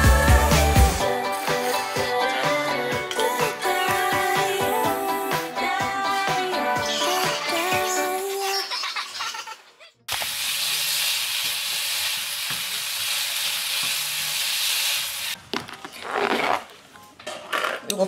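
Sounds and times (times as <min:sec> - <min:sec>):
food sizzling in a frying pan: 0:10.1 - 0:15.4.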